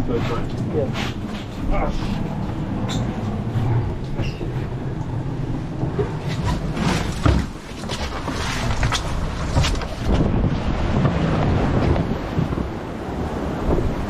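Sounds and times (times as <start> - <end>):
hull rumbling through water: 0.0 - 14.0.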